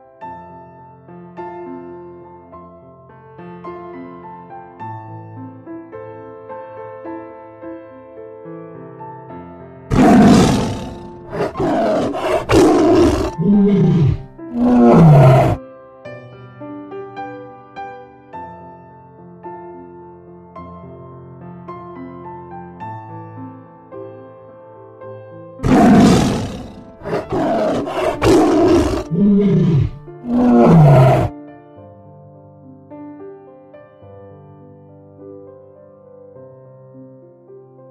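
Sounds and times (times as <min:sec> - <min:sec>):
soft piano music: 0:00.0 - 0:09.9, 0:15.6 - 0:25.6, 0:31.3 - 0:37.9
tiger roaring: 0:09.9 - 0:15.6, 0:25.6 - 0:31.3.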